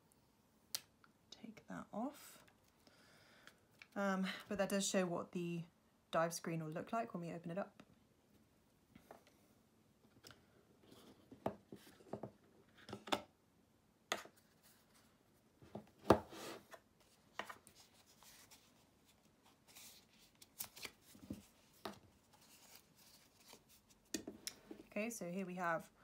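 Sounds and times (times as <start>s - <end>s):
cardboard box sliding and rubbing: 16.2s - 16.8s.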